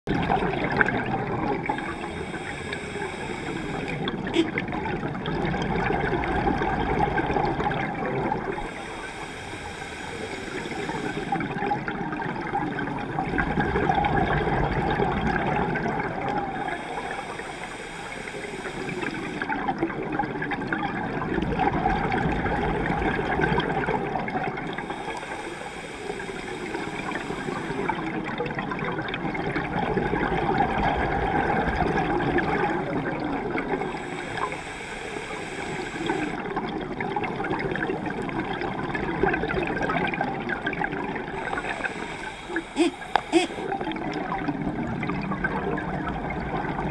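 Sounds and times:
gurgling exhaled bubbles: 0.1 - 46.9
regulator hissing inhale: 1.6 - 4.5, 8.5 - 11.6, 16.5 - 19.5, 24.7 - 28.1, 33.7 - 36.4, 41.3 - 43.7.

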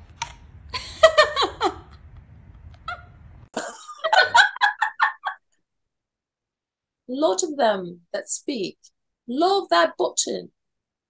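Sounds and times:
person laughing: 0.7 - 2.0, 2.8 - 5.4.

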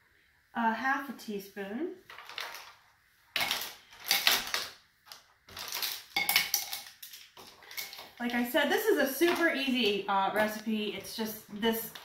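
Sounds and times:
dried herbs rattling in a jar: 2.1 - 2.8, 5.5 - 8.6.

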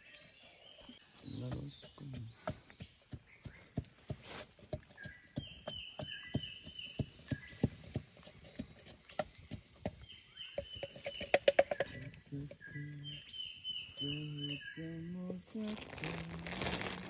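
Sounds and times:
campfire crackling and popping: 15.2 - 17.0.

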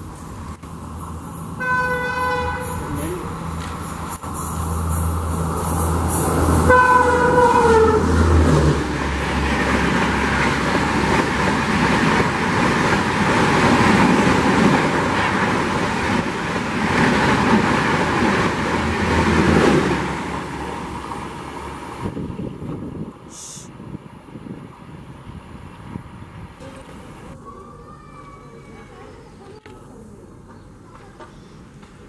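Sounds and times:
train wheels rolling on rails: 0.0 - 23.2
train horn note: 1.6 - 2.9, 6.6 - 8.2.

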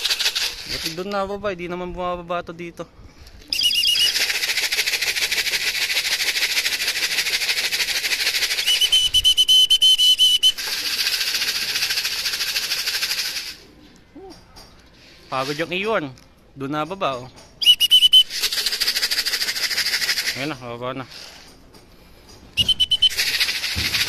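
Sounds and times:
hand-shaken rattling: 0.0 - 1.1, 3.7 - 13.6, 17.1 - 24.0
person whistling: 3.5 - 4.2, 8.6 - 10.6, 17.6 - 18.4, 22.6 - 23.4.

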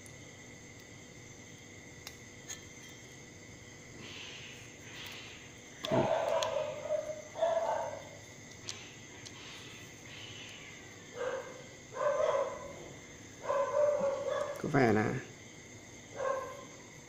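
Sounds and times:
animal calls: 4.0 - 14.7.

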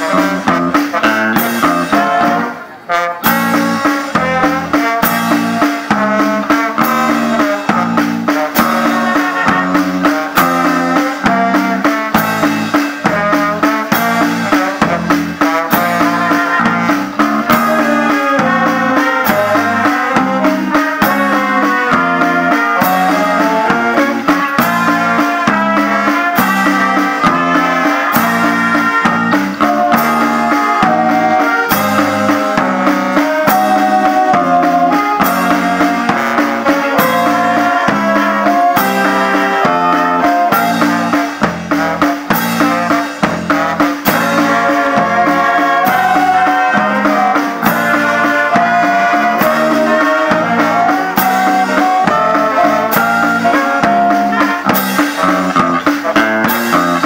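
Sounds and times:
wind band playing upbeat music: 0.0 - 57.0.

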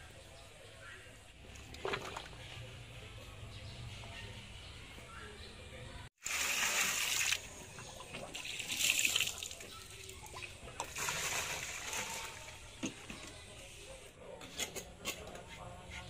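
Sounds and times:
water splashing in a drum: 1.6 - 2.4, 6.2 - 13.0.

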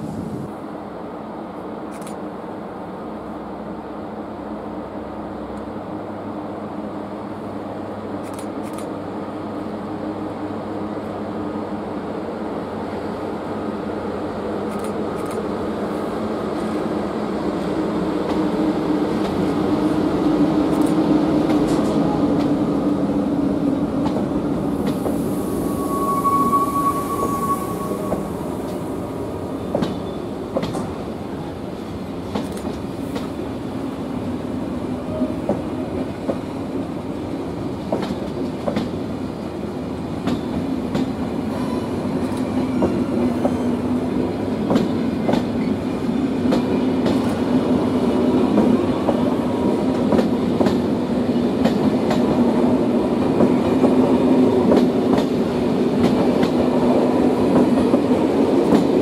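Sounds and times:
train wheels clacking over rail joints: 29.7 - 31.0, 37.8 - 39.0, 40.2 - 41.8, 44.6 - 45.8, 49.9 - 50.9.

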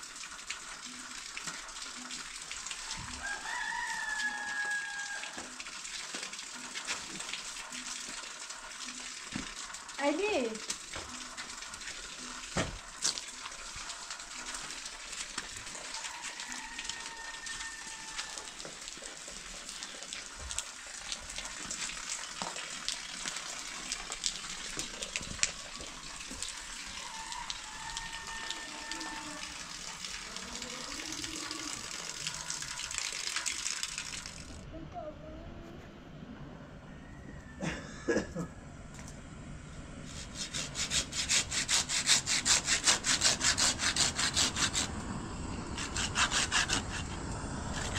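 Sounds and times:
running water hiss: 0.0 - 34.6, 39.7 - 47.9
water drips and taps: 0.0 - 34.6.

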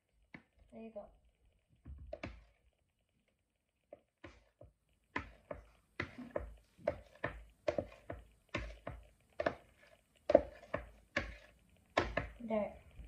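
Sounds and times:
spatula tapping plastic container: 3.9 - 12.4.

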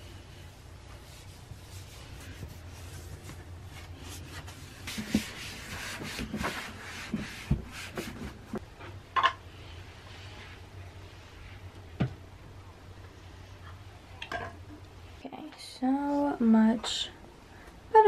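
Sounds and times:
wipe rubbing sink: 0.0 - 8.6.

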